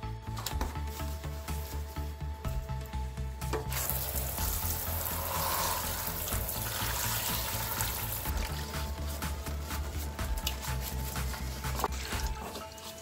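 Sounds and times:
background music: 0:00.0 - 0:13.0
water spray hissing on plastic: 0:03.7 - 0:13.0.

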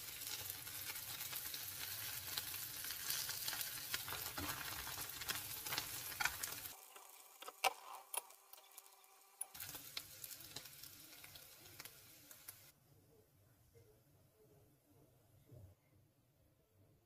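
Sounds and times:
mushrooms sizzling in butter: 0:00.0 - 0:12.7.

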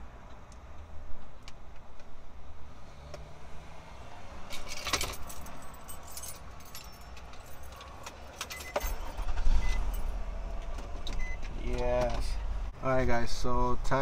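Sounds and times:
small metal items jangling: 0:04.5 - 0:09.2.

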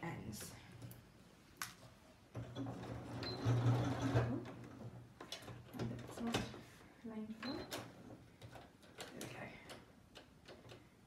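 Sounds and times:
sewing machine stitching: 0:02.4 - 0:05.9.

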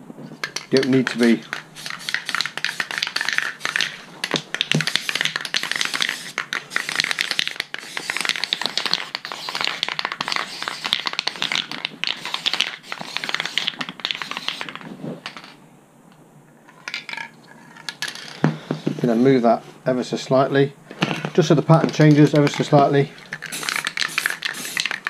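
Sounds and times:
spray cans clicking and tapping: 0:00.4 - 0:15.6, 0:20.9 - 0:25.0.

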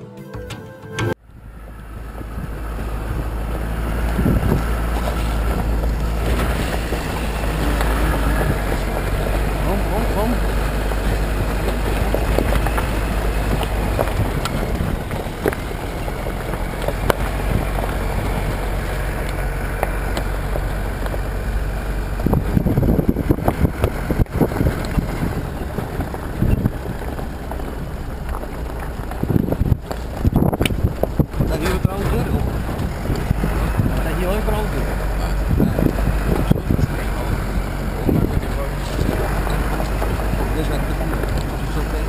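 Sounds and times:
diesel engine drone: 0:00.8 - 0:42.0
wind rumbling on microphone: 0:01.2 - 0:42.0
knocks over rough track: 0:01.4 - 0:42.0.

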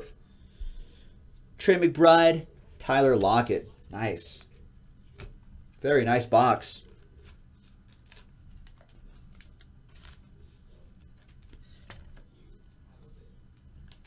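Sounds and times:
trading cards tapping and rustling: 0:06.8 - 0:14.0.

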